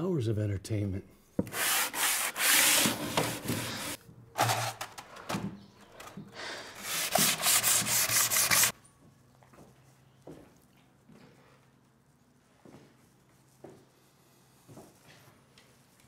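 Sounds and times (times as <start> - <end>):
sandpaper rubbing on wood: 1.5 - 4.0, 6.8 - 8.7.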